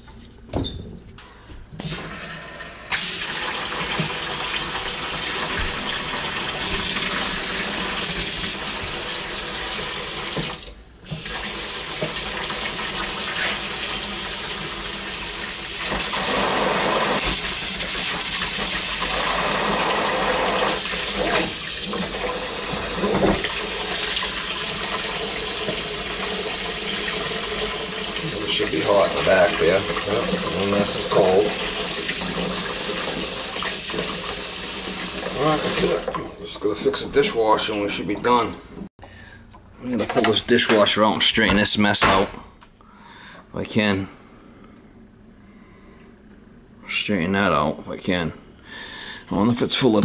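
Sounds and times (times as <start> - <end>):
water running into steel sink: 1.8 - 36.4.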